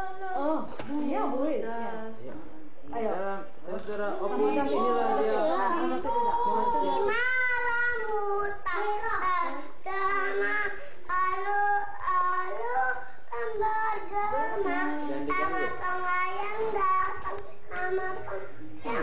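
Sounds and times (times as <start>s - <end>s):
child singing: 5.5s - 19.0s.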